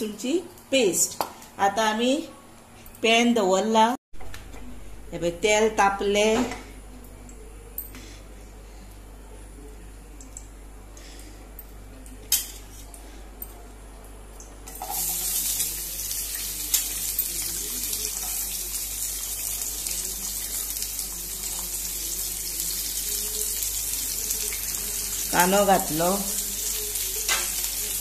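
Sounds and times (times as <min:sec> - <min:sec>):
onion sizzling in hot oil: 0:14.7 - 0:28.0.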